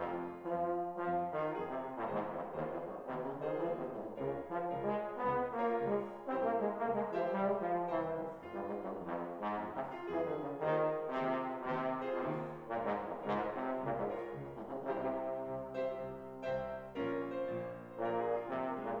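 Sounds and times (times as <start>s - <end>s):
bass trombone playing: 0.0s - 19.0s
piano accompaniment: 0.0s - 19.0s.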